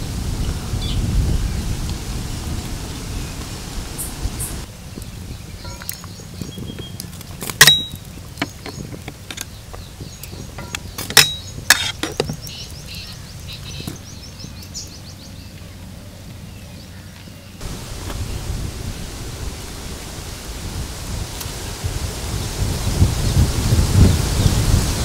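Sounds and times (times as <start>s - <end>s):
loud sharp ringing clinks: 7.6s - 8.0s
cooking utensils knocking and clinking: 10.5s - 12.4s.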